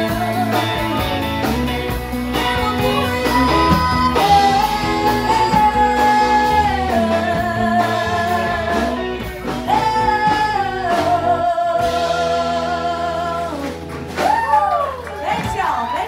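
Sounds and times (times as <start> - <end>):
woman singing: 0.0 - 1.0, 2.4 - 13.8
country band playing: 0.0 - 16.0.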